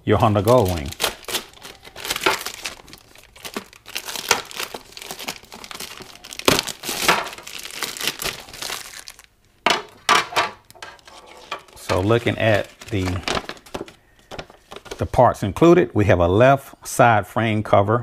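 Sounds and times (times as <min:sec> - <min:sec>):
plastic wrap crinkling: 0:00.2 - 0:09.3, 0:10.9 - 0:15.1.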